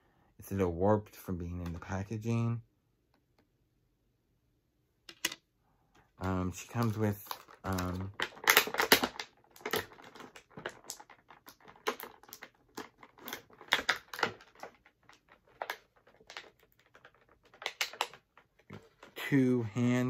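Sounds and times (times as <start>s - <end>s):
plastic packaging clicks and crinkles: 6.2s - 19.4s.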